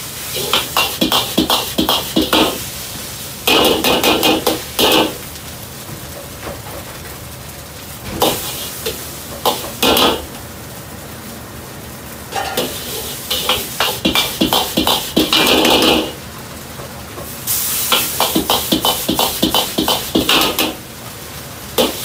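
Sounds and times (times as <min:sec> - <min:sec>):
rice sizzling in oil: 0:00.0 - 0:22.0
wok burner roaring: 0:00.0 - 0:22.0
steel ladle scraping a wok: 0:12.3 - 0:14.7.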